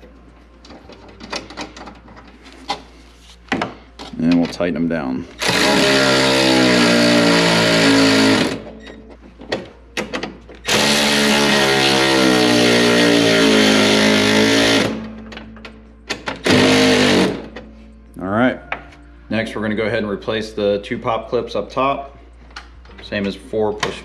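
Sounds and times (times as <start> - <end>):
cordless ratchet running: 5.4 - 8.6.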